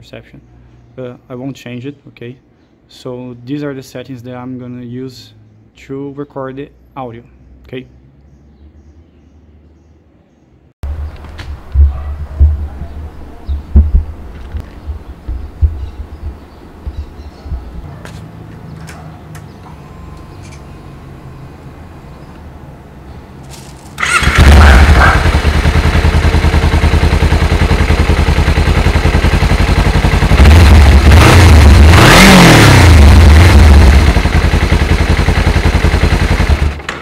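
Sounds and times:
motorcycle engine starting and revving: 0:23.3 - 0:37.0.

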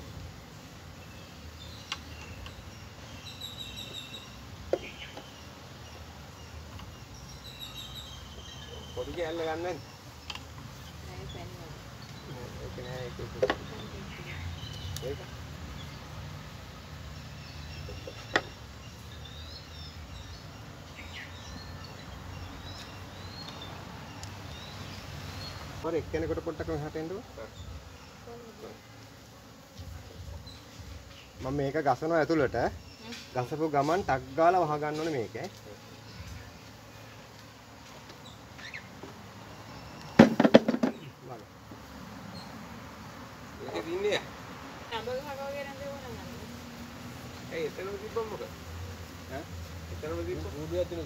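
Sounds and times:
birds chirping: 0:00.0 - 0:51.0
wooden frames knocking on box: 0:40.2 - 0:41.1.

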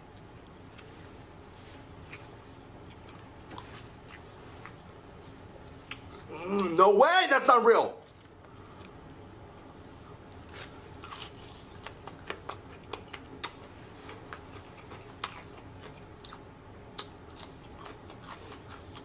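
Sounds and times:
crunchy chewing of fried chicken: 0:00.0 - 0:06.3, 0:10.1 - 0:19.0.

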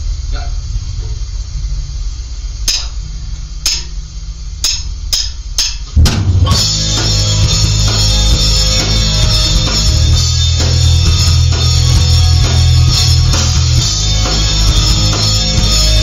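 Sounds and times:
low hum: 0:00.0 - 0:16.0
heavy metal band playing: 0:06.0 - 0:16.0.

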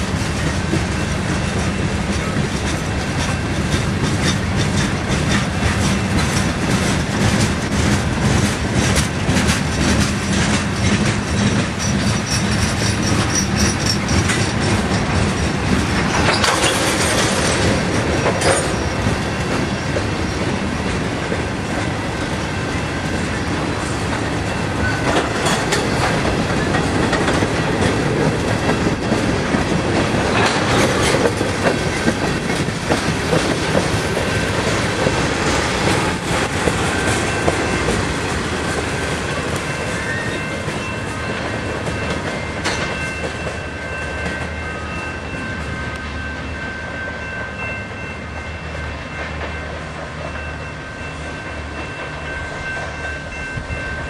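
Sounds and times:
wheels clacking over rail joints: 0:00.0 - 0:44.6
train wheels rumbling on rails: 0:00.0 - 0:54.0
high wheel squeal: 0:11.4 - 0:14.8.

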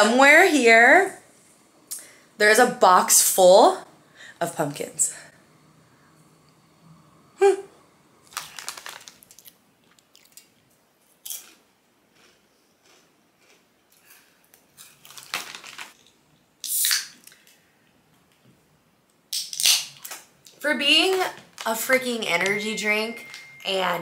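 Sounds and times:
plastic chip bag crinkling: 0:08.2 - 0:10.6, 0:14.8 - 0:16.1, 0:20.8 - 0:23.8
crunchy chewing of chips: 0:08.3 - 0:16.2.

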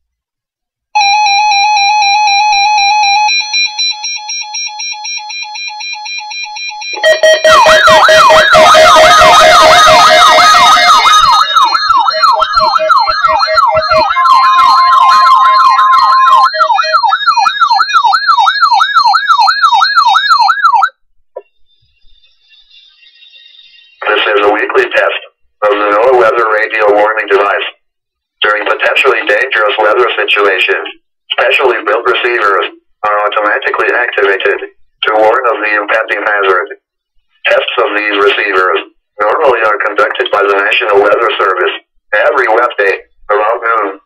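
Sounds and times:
warbling siren: 0:01.0 - 0:21.0, 0:21.8 - 0:24.6
beeping alarm tones: 0:01.0 - 0:25.0
electronic beep tone pulsing: 0:06.7 - 0:17.8, 0:20.2 - 0:24.4.

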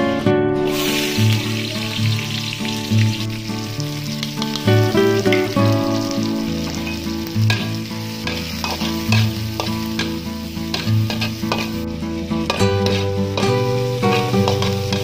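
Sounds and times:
soft music with plucked notes: 0:00.0 - 0:15.0
shallots and garlic sizzling in oil: 0:00.6 - 0:15.0
spatula scraping and tapping pan: 0:06.9 - 0:11.8, 0:12.4 - 0:15.0.

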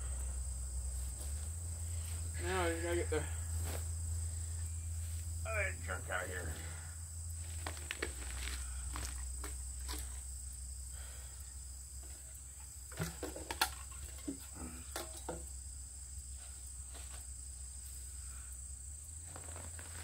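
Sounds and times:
insect drone: 0:00.0 - 0:20.0
grass rustling and crackling: 0:00.7 - 0:10.7, 0:19.0 - 0:20.0.

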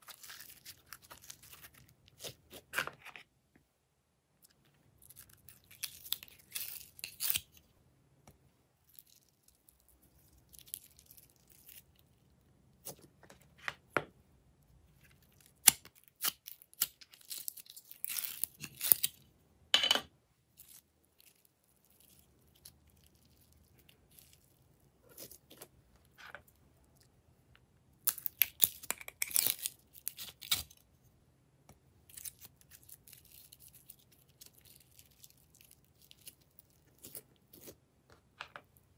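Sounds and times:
slime crackling and snapping: 0:28.0 - 0:30.7.

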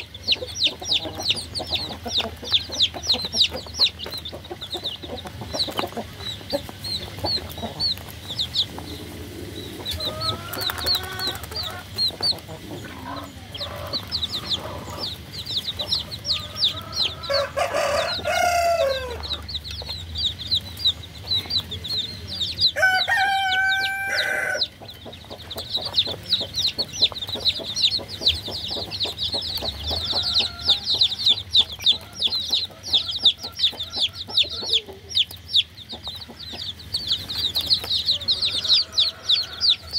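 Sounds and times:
baby chicks peeping: 0:00.0 - 0:39.9
low chicken calls: 0:22.8 - 0:24.7.

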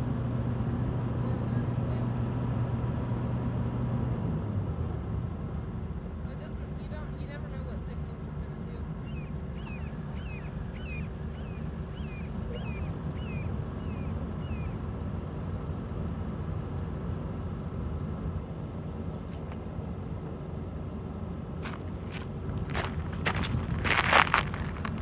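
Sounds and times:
low outdoor rumble: 0:00.0 - 0:25.0
faint hum: 0:06.2 - 0:17.7
small bird chirping: 0:08.8 - 0:14.9.

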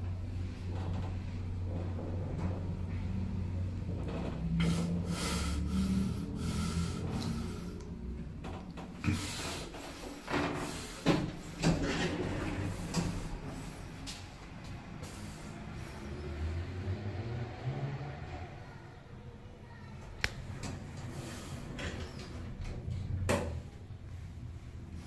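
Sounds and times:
elevator hum: 0:00.0 - 0:17.0.

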